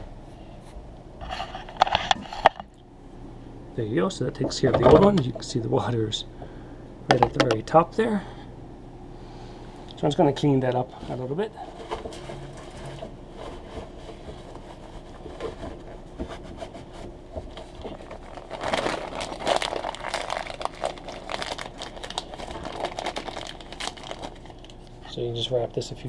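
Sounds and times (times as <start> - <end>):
paper towel rubbing: 11.6 - 24.5
plastic packaging crinkling: 17.4 - 25.0.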